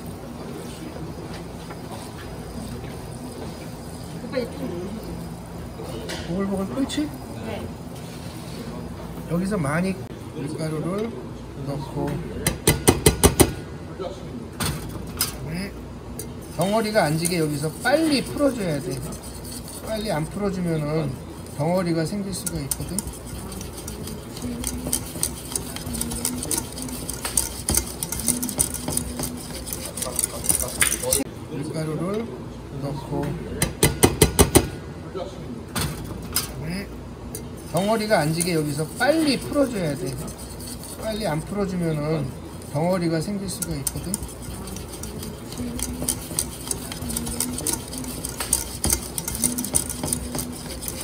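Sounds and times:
whisk scraping a saucepan: 0:00.0 - 0:07.2, 0:15.5 - 0:31.3, 0:37.4 - 0:51.0
low steady hum: 0:00.0 - 0:33.9, 0:34.6 - 0:51.0
whisk clicking in saucepan: 0:21.4 - 0:31.2, 0:42.6 - 0:51.0.

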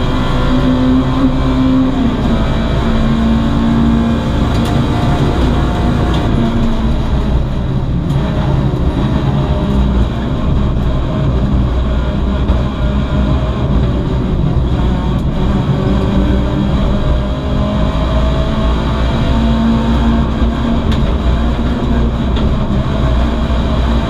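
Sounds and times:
car engine droning under load: 0:00.0 - 0:24.0
road and chassis rumble: 0:00.0 - 0:24.0.

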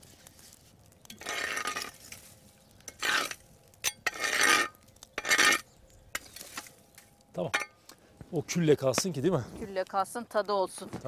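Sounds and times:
metal rake scraping stone: 0:00.3 - 0:07.7.

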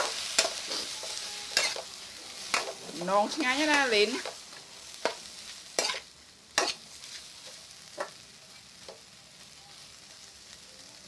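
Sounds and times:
metal spatula scraping a wok: 0:00.0 - 0:07.6
faint sizzle: 0:00.0 - 0:11.0.

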